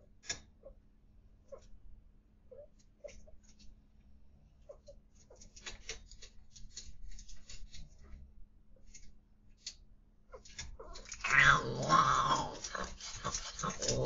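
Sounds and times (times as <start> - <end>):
cat yowling: 10.9 - 14.0.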